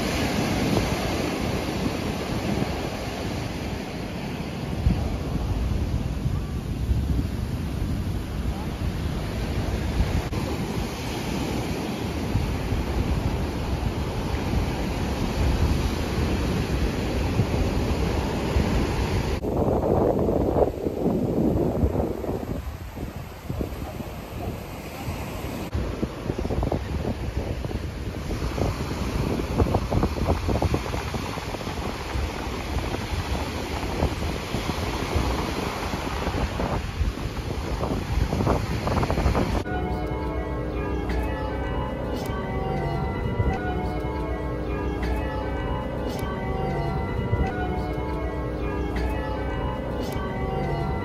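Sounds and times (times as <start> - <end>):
wind on the microphone: 0.0 - 39.8
surf washing onto a beach: 0.0 - 40.6.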